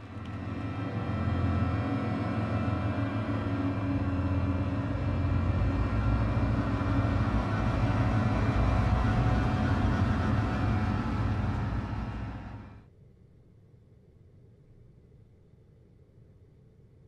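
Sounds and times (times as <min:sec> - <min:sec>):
low rumbling drone: 0:00.0 - 0:12.8
sustained layered tones: 0:00.0 - 0:12.8.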